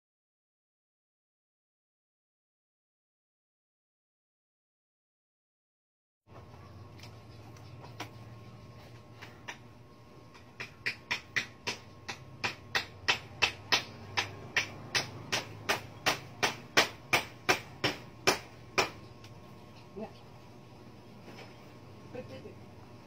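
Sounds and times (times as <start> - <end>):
low background hum: 6.3 - 23.0
sharp knocks: 10.3 - 19.0.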